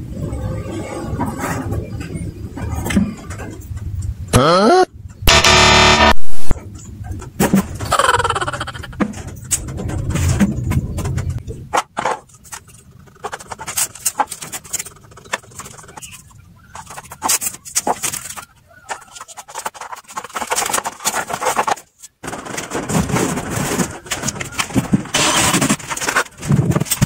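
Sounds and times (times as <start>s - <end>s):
low steady hum: 5.2s - 6.8s.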